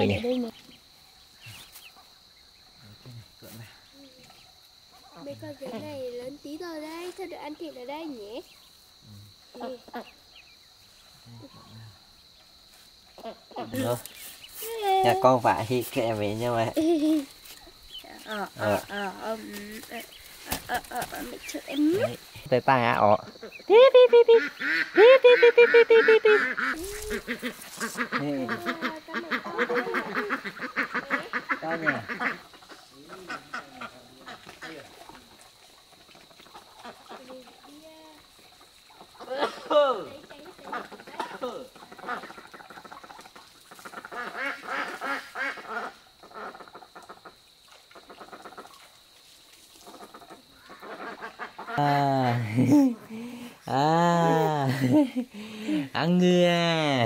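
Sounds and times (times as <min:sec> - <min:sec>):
ducks quacking: 0:23.1 - 0:35.3, 0:36.0 - 0:37.8, 0:38.5 - 0:47.4, 0:49.8 - 0:53.5.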